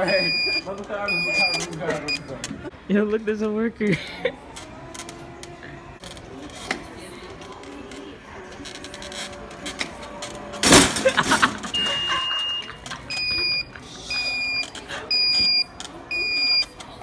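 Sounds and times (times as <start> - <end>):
shopping cart beeping: 0.0 - 2.4, 4.4 - 17.0.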